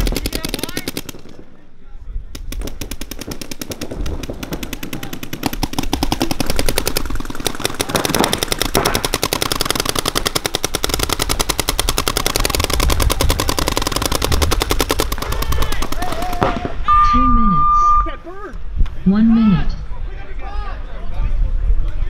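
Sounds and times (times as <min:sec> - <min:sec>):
paintball markers firing rapidly: 0:00.0 - 0:01.4, 0:02.4 - 0:16.8.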